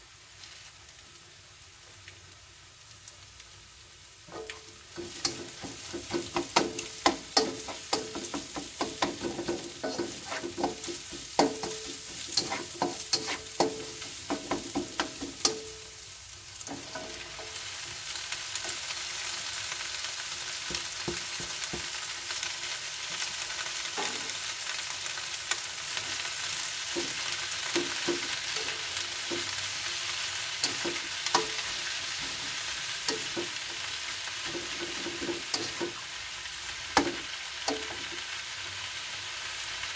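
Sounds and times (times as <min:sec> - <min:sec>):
vegetables sizzling in oil: 0:00.0 - 0:39.9
spoon scraping and knocking pan: 0:04.3 - 0:16.0, 0:16.7 - 0:17.6, 0:26.9 - 0:30.0, 0:30.6 - 0:36.0, 0:37.0 - 0:38.2.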